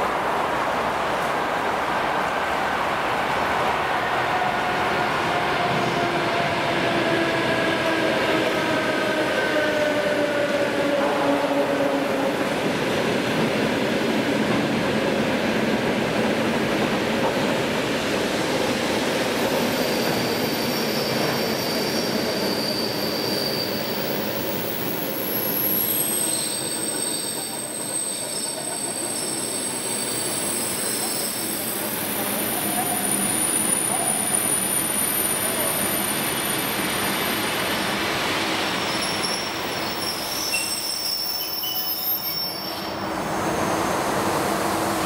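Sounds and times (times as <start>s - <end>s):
rumble of train wheels: 0.0s - 45.0s
brake squeals: 19.8s - 24.2s, 38.8s - 43.9s.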